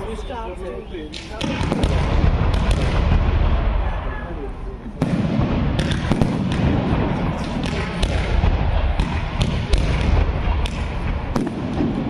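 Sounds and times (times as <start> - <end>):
firework bangs and pops: 1.1 - 3.8, 5.0 - 12.0
low rumble: 1.7 - 12.0.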